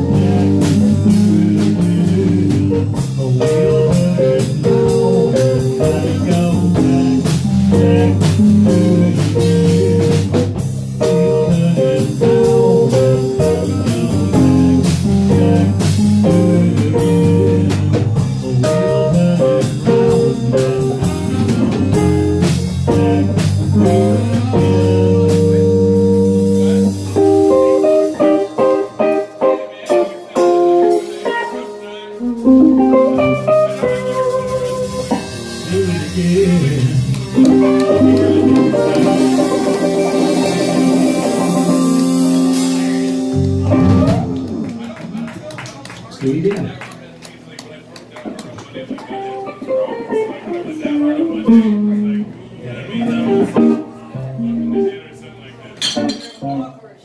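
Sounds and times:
bass line: 0.0s - 29.2s, 32.2s - 45.4s
drum kit: 0.0s - 46.7s
electric guitar: 0.0s - 56.7s.

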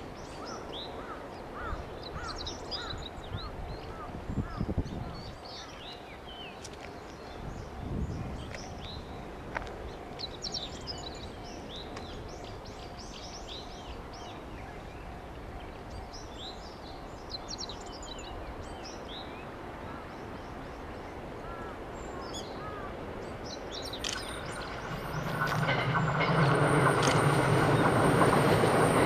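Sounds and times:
outdoor background noise: 0.0s - 29.0s
train rumble: 0.0s - 29.0s
small birds chirping: 22.0s - 26.0s.

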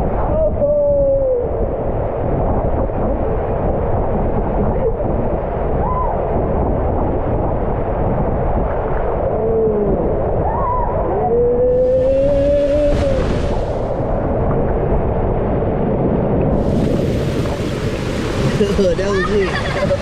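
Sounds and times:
rushing water: 1.4s - 20.0s
people calling out: 11.4s - 13.4s.

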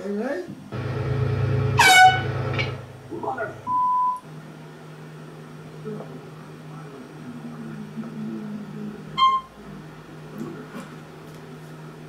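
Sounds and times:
low steady hum: 0.7s - 4.3s
high electronic beep: 3.6s - 4.2s, 9.2s - 9.5s.

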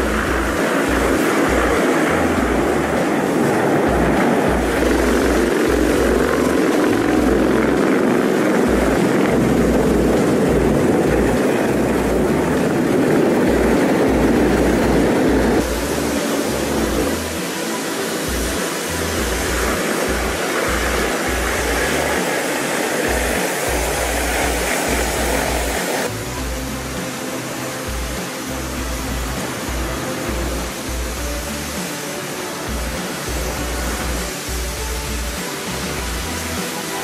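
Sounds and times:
low rumbles: 0.0s - 17.4s
helicopter rotors and jet engines: 0.0s - 37.0s.

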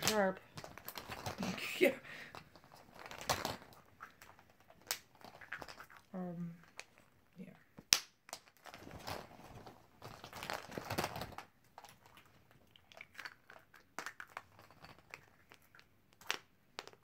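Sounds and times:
bag crinkling: 0.0s - 6.1s, 8.4s - 15.3s
plastic eggs clicking and tapping: 0.0s - 7.1s, 7.8s - 17.0s.

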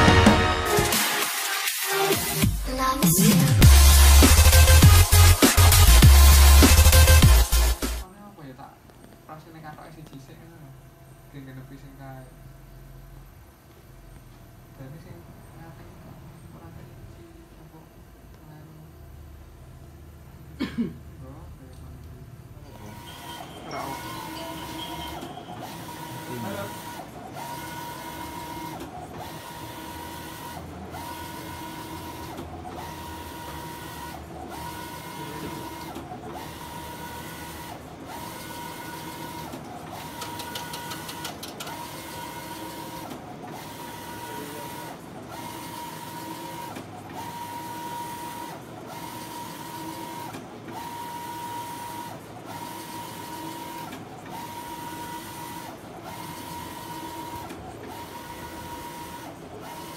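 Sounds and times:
printer carriage whine: 22.6s - 59.9s.

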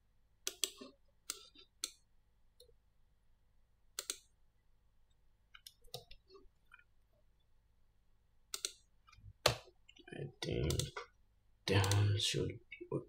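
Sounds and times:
mouse and keyboard clicks: 0.4s - 2.0s, 4.0s - 4.3s, 8.5s - 8.8s.

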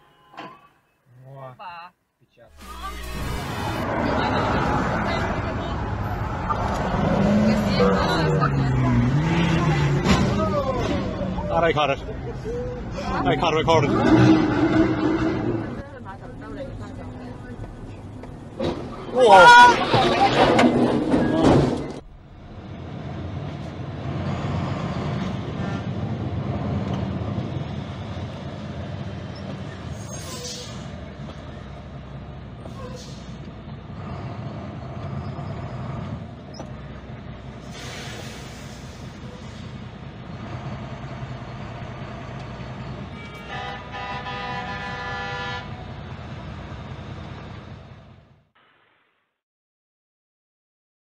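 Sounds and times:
road and traffic noise: 0.0s - 48.6s
truck engine low rumble: 2.7s - 19.2s, 19.8s - 48.5s
truck engine running: 30.8s - 48.4s
vehicle horn chord: 43.2s - 45.7s.

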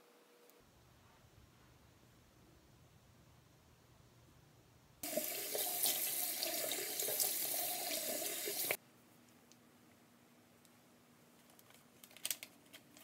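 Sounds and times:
faucet running into sink: 5.0s - 8.8s.

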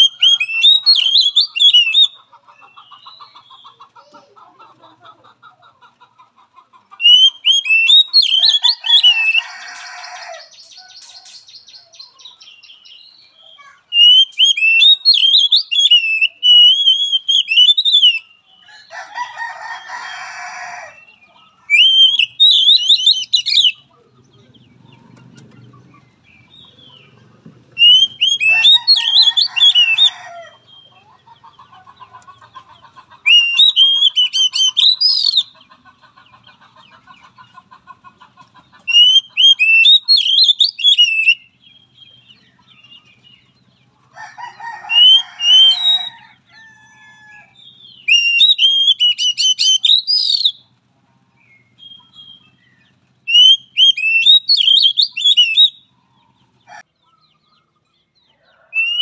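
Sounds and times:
songbird warbling: 0.0s - 3.7s, 6.9s - 18.3s, 21.0s - 23.9s, 26.1s - 35.8s, 38.7s - 43.4s, 44.6s - 46.3s, 47.7s - 50.6s, 51.5s - 56.8s, 58.7s - 59.0s
rooster crowing: 8.2s - 12.0s, 18.6s - 21.1s, 27.8s - 30.9s, 44.1s - 47.6s, 58.3s - 59.0s.

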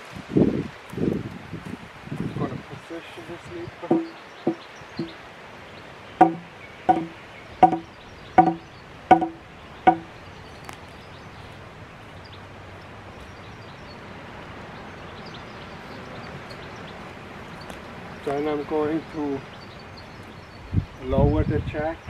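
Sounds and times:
outdoor background: 0.0s - 22.0s
timber sleeper knocks with ringing tone: 3.8s - 5.1s, 6.2s - 10.1s.

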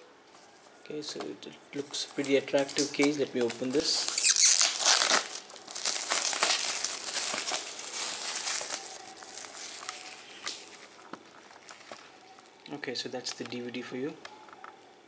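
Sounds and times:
plastic shrink-wrap crinkling: 1.7s - 13.5s.

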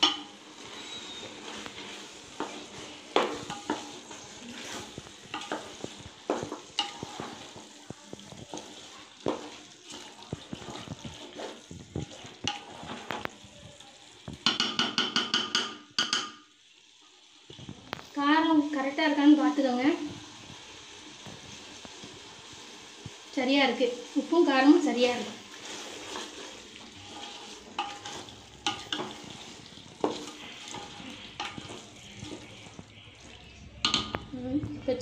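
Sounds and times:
spatula scraping metal pot: 0.0s - 7.7s, 8.3s - 13.4s, 24.9s - 34.3s
light sizzle: 0.0s - 35.0s.

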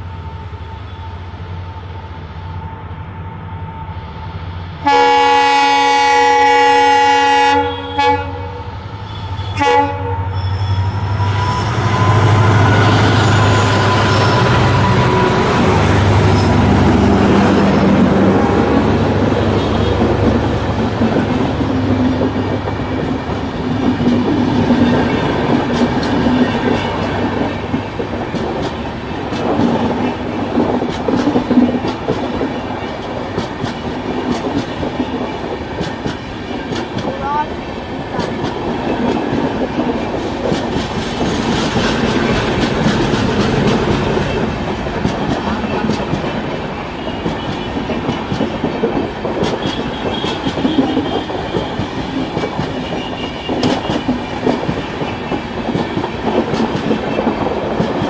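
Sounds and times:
train horn toot: 4.8s - 16.2s, 49.6s - 54.2s
train wheels clickety-clack: 10.7s - 58.0s.

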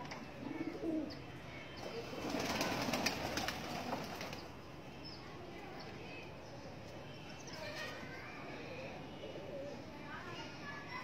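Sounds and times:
pigeons cooing: 0.4s - 1.2s.

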